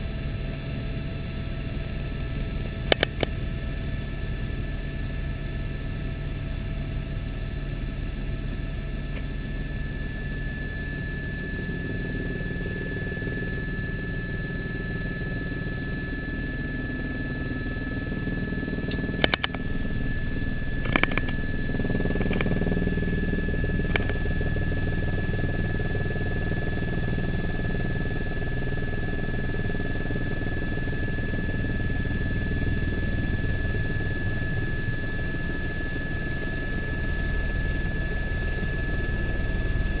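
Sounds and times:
helicopter rotor rumble: 0.0 - 40.0
helicopter turbine whine: 0.0 - 40.0.

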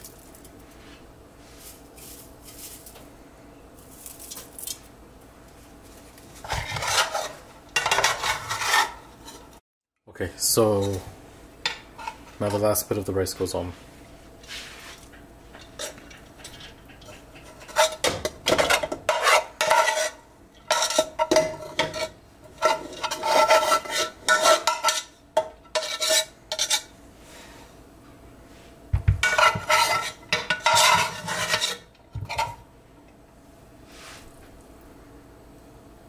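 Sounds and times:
metal spoon scraping a pot: 6.4 - 9.6, 15.6 - 26.9, 29.2 - 32.6.

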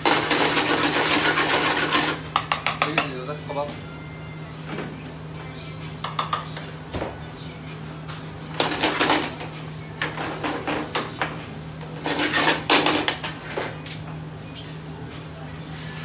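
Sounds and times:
utensils clattering against pans: 0.0 - 3.4, 6.0 - 7.1, 8.4 - 14.7.

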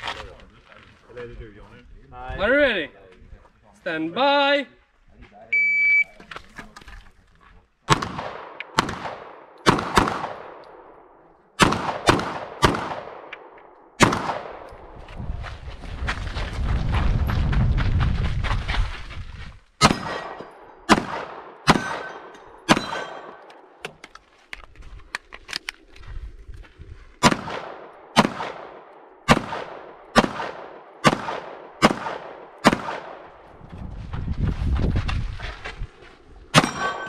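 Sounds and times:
pistol shots: 7.9 - 11.0, 11.6 - 14.7, 19.8 - 23.5, 27.2 - 33.4, 36.6 - 37.0.

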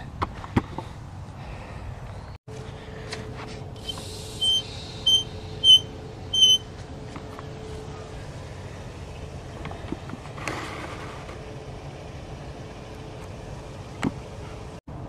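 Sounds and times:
faucet valve handle squeaking: 4.4 - 5.8, 6.4 - 6.6.

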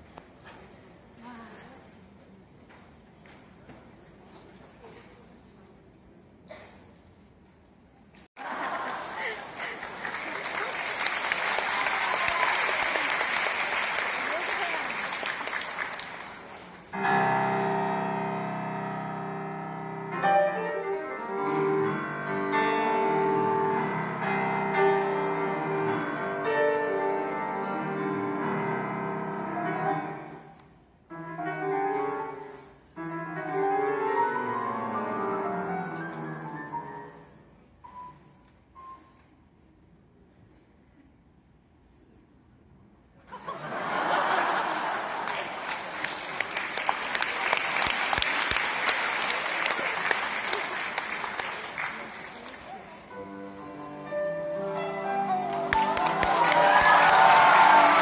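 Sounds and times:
audience applause: 8.4 - 16.9, 43.6 - 52.7, 55.1 - 58.0
grand piano playing: 16.9 - 38.1, 53.0 - 58.0.

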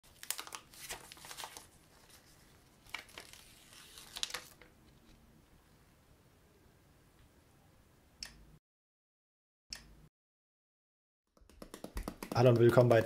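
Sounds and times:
plastic film crinkling: 0.1 - 4.7.

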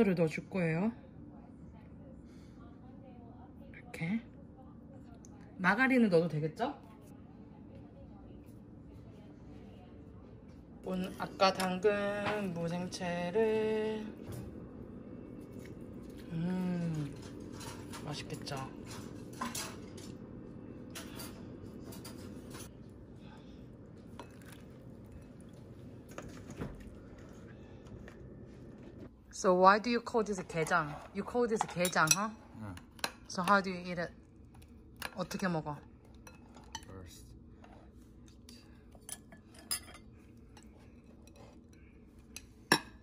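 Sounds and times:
steady low hum: 0.0 - 43.0
metal spoon clinking on ceramic bowls: 31.6 - 32.3, 39.0 - 41.4.

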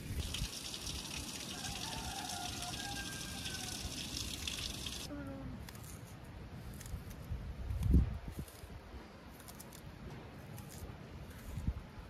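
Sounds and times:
running water: 0.0 - 5.1.

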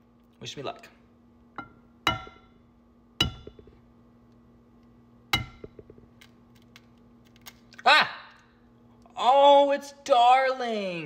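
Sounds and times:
egg knocking on metal pan: 1.6 - 2.5, 3.2 - 3.8, 5.4 - 6.1.

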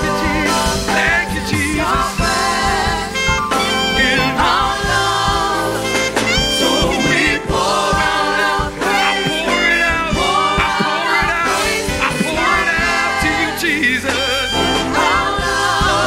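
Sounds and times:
group singing praise song: 0.0 - 16.0
keyboard accompaniment: 0.0 - 16.0
percussive hits: 6.2 - 13.0.

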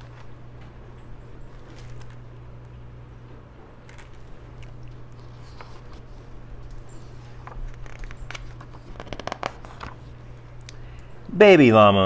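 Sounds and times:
steady low hum: 0.0 - 12.0
book pages rustling: 1.4 - 2.3, 3.8 - 10.5.

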